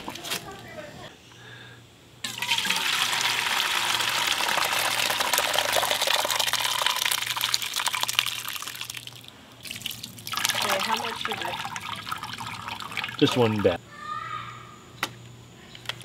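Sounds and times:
berries and juice pouring into colander: 2.2s - 13.8s.

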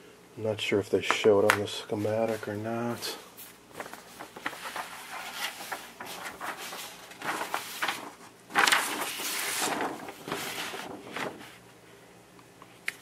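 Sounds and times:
large paper sheets rustling: 1.9s - 11.7s.

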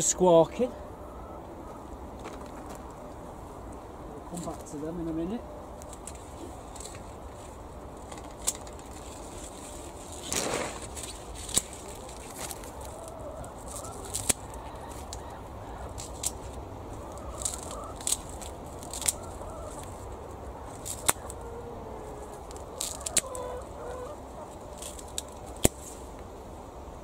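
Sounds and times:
hens clucking: 0.0s - 9.4s, 10.4s - 25.7s
secateurs snipping stalks: 8.0s - 16.6s, 17.2s - 20.0s, 20.7s - 21.4s, 22.4s - 23.7s, 24.7s - 26.2s.

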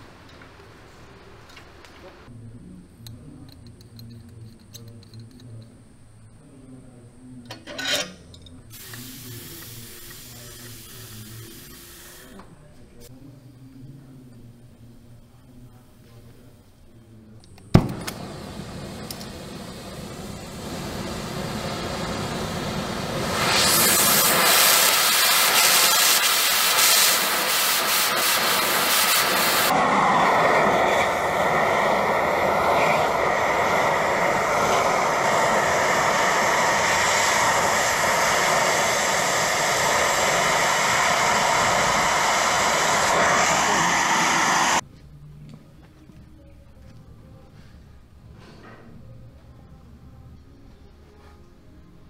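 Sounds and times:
cutting torch hissing: 8.7s - 12.4s, 17.8s - 44.8s.

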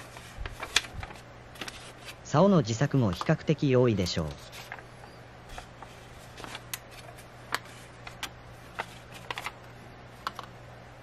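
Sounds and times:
paper rustling and tapping: 0.0s - 2.2s, 3.0s - 3.4s, 5.5s - 9.6s
steady low hum: 0.0s - 11.0s.

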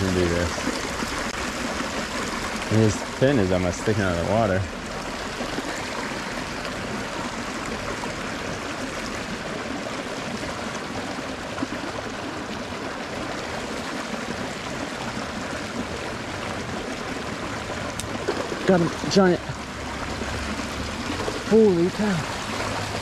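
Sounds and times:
creek water flowing: 0.0s - 23.0s.

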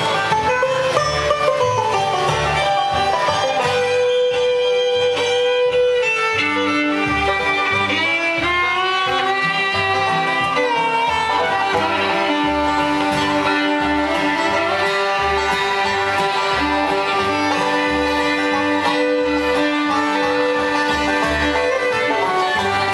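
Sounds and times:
fiddle with sliding notes: 0.0s - 22.9s
picked banjo: 0.0s - 22.9s
strummed guitar: 0.0s - 22.9s.

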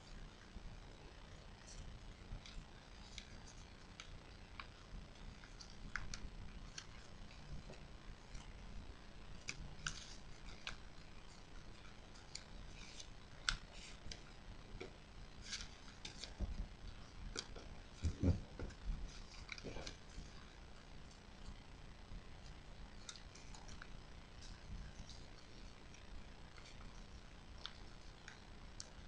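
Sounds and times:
paper rustling and crinkling: 9.3s - 20.5s.

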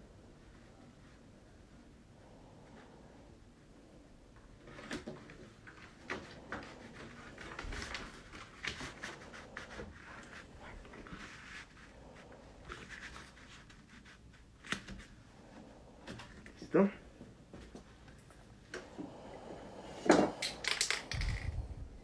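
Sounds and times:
stiff paper rustling: 5.7s - 15.2s.

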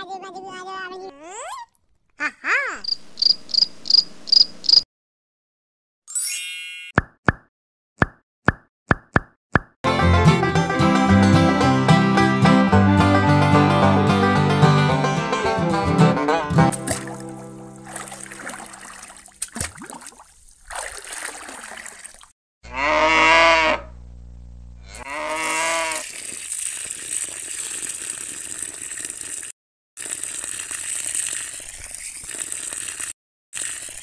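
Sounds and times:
water pouring onto sand: 16.7s - 22.3s, 25.4s - 34.0s
cow mooing: 22.6s - 23.9s, 24.8s - 26.0s.

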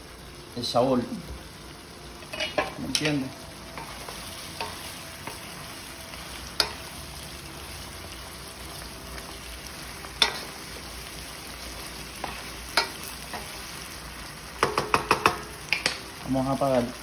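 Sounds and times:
soft sizzle in frying pan: 0.0s - 17.0s
wooden spoon knocking on pan: 14.6s - 16.0s.

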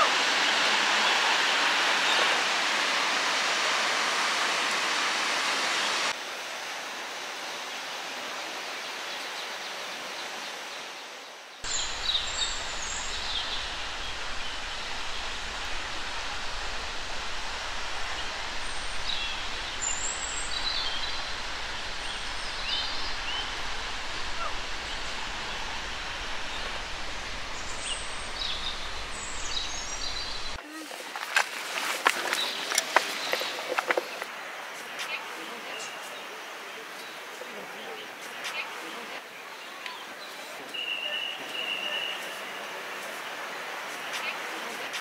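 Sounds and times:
waterfall rushing: 0.0s - 9.0s, 11.6s - 45.0s
birds chirping: 11.6s - 30.8s, 31.4s - 36.4s
low rumble: 11.7s - 30.6s.

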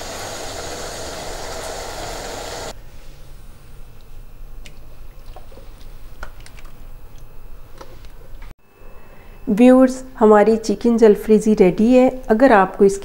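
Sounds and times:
sauce sizzling in a wok: 0.0s - 2.8s.

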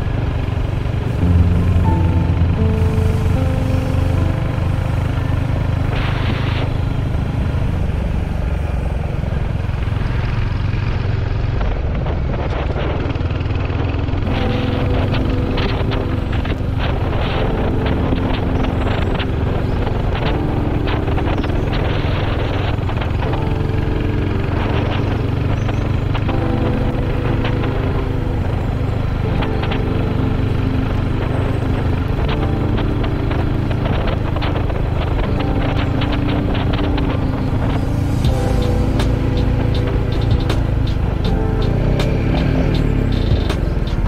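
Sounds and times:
motorcycle engine running: 0.0s - 44.0s
wind rushing on helmet: 0.0s - 44.0s.

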